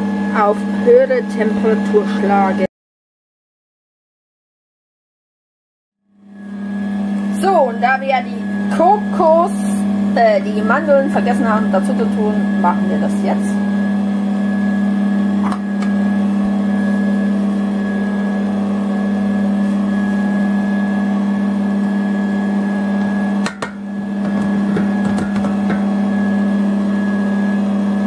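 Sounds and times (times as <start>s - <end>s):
stand mixer motor humming: 10.8s - 28.0s.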